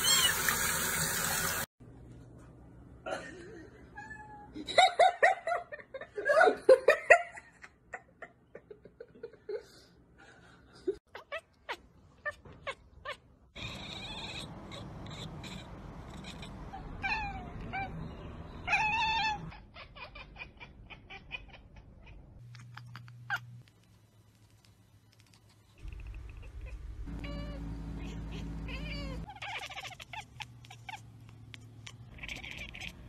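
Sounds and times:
cats yowling and meowing: 0:00.0 - 0:00.5, 0:11.1 - 0:22.2, 0:26.3 - 0:31.1, 0:31.8 - 0:33.0.

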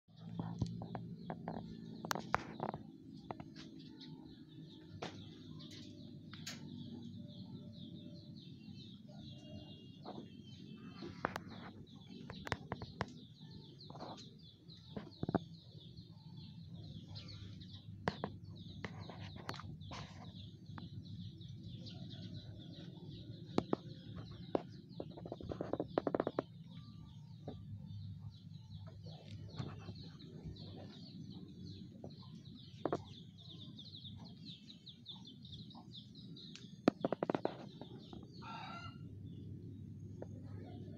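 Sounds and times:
small birds chirping: 0:00.1 - 0:40.9
sharp clicks and knocks: 0:00.2 - 0:03.9, 0:11.2 - 0:15.6, 0:36.4 - 0:38.4.

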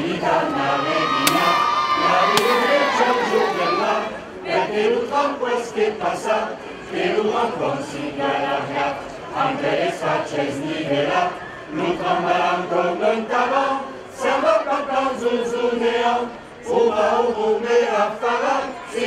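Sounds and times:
choir of adults and children singing: 0:00.0 - 0:19.0.

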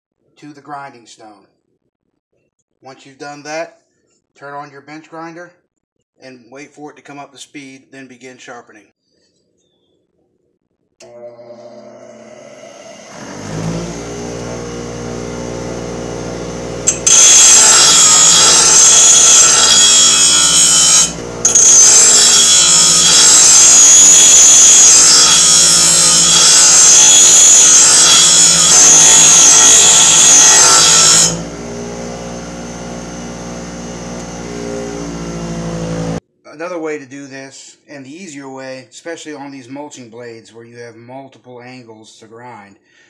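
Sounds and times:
bench grinder humming: 0:11.0 - 0:36.2
metal blade grinding on stone: 0:16.9 - 0:31.4.

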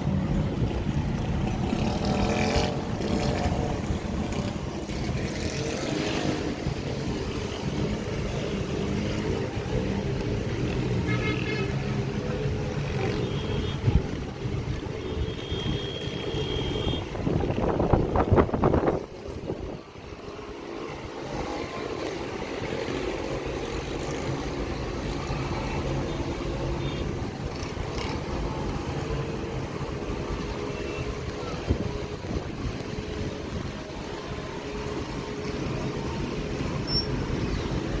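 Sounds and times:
city traffic hum: 0:00.0 - 0:38.0.

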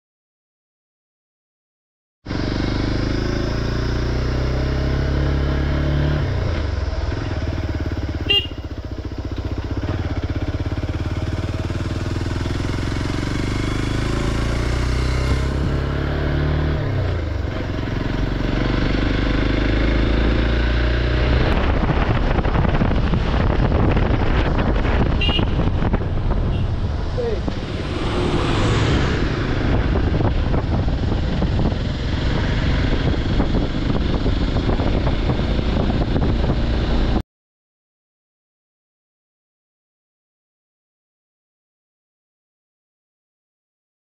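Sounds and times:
motorcycle engine running: 0:02.3 - 0:37.2
wind on microphone: 0:21.2 - 0:37.2.

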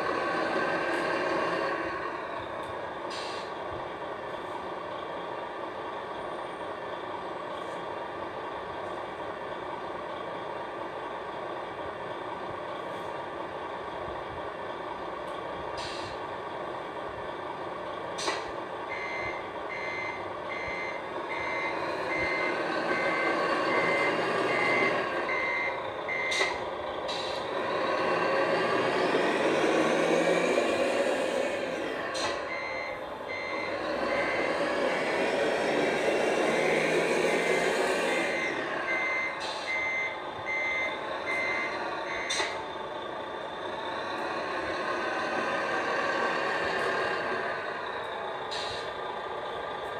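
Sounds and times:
truck engine sound: 0:00.0 - 0:49.9
reversing beeper beeps: 0:18.9 - 0:26.6, 0:32.5 - 0:34.6, 0:38.3 - 0:42.6.

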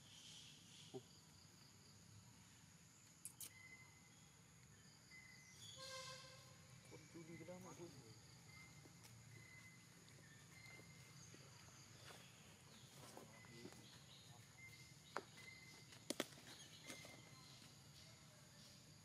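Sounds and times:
faint high insect hum: 0:00.0 - 0:19.0
sharp clicks or snaps: 0:03.2 - 0:03.6.

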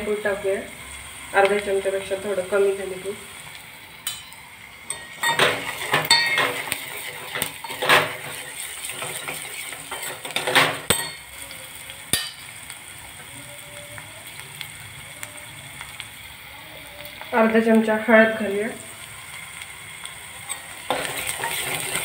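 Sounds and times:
onions sizzling in oil: 0:00.0 - 0:22.0
ladle scraping and clinking pot: 0:04.1 - 0:11.2, 0:20.5 - 0:22.0.

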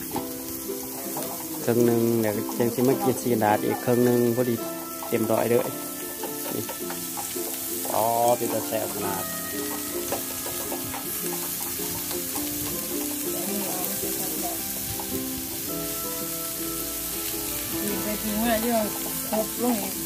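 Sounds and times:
background music: 0:00.0 - 0:20.0
meat sizzling on grill pan: 0:00.0 - 0:20.0
person singing: 0:02.5 - 0:05.8.

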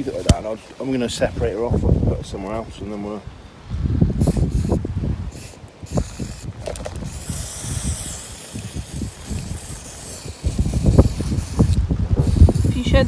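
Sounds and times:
aerosol spray hissing: 0:04.2 - 0:13.0.

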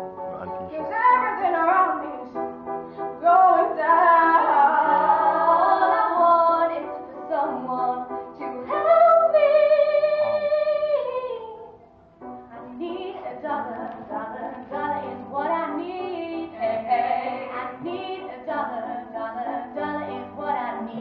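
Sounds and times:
girls singing: 0:03.2 - 0:11.6, 0:12.6 - 0:21.0.

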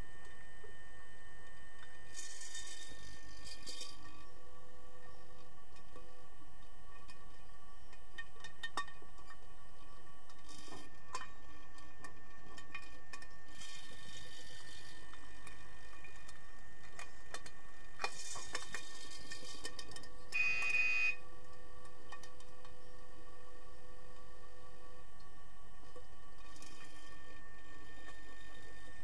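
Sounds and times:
faint underwater hum: 0:00.0 - 0:29.0
underwater clicks and ticks: 0:07.9 - 0:09.5
short buzzing tone: 0:20.3 - 0:21.2.

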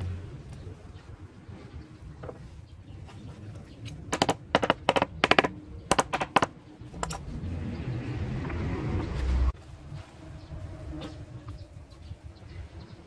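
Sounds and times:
hammer tapping nails into wood: 0:04.1 - 0:06.5.

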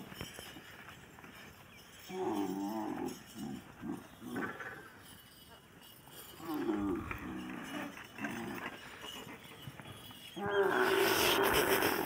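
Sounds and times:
camel calling: 0:01.9 - 0:05.0, 0:06.3 - 0:12.0.

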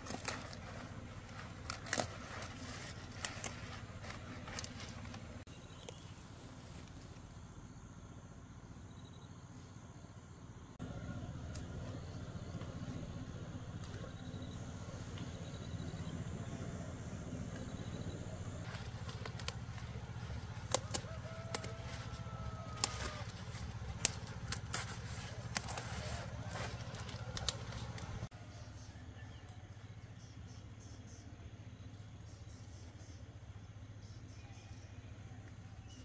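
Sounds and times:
steady low rumble: 0:00.0 - 0:28.8
chicken calling: 0:18.7 - 0:28.3.

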